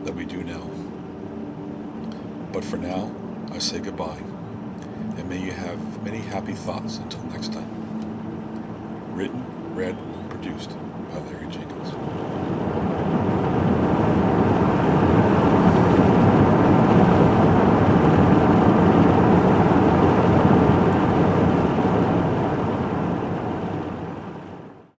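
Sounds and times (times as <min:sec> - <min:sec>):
wind blowing across microphone: 0:05.8 - 0:24.9.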